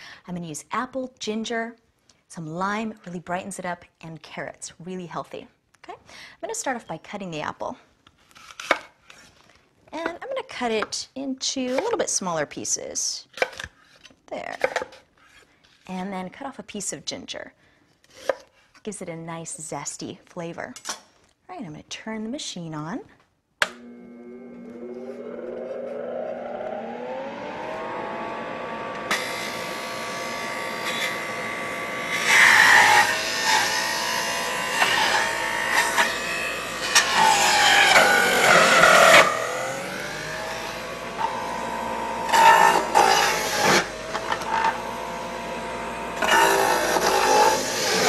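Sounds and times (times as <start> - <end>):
juicer grinding produce: 23.7 - 48.0
juicer motor whining: 23.7 - 48.0.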